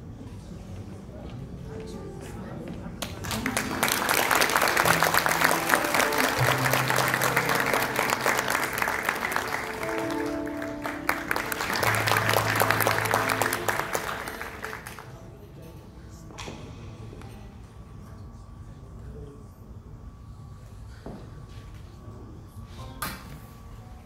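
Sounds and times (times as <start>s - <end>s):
audience applauding: 3.0s - 15.2s.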